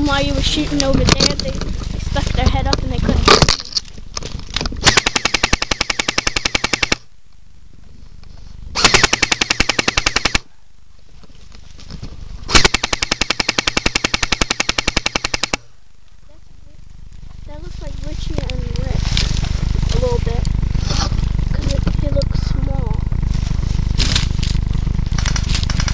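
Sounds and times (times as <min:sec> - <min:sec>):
airsoft gun full-auto bursts: 0:04.8 - 0:07.1, 0:08.8 - 0:10.5, 0:12.5 - 0:15.7, 0:25.1 - 0:25.9.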